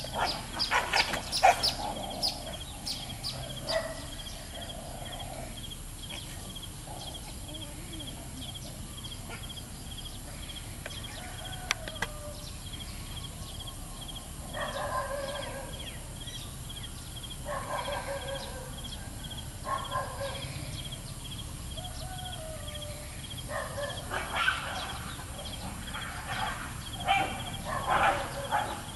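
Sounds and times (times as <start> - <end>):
chickens clucking: 0.0 - 4.0.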